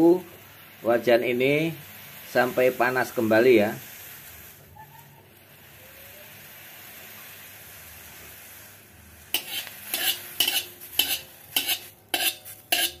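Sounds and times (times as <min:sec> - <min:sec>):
hot wok hissing: 0:00.0 - 0:13.0
spatula scraping a wok: 0:03.8 - 0:13.0.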